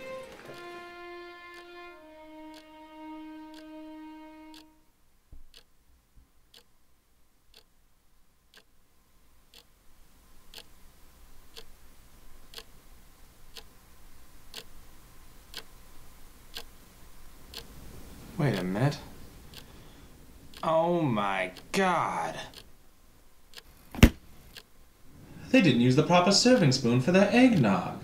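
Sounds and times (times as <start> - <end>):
clock ticking: 0.0 - 4.8, 5.4 - 5.7, 6.5 - 6.7, 7.5 - 7.8, 8.5 - 8.7, 9.5 - 9.7, 10.5 - 10.8, 11.5 - 11.8, 12.4 - 12.8, 13.5 - 13.9, 14.5 - 14.8, 15.4 - 17.8, 18.4 - 23.8, 24.5 - 24.9, 25.6 - 28.0
held musical note: 0.0 - 4.8.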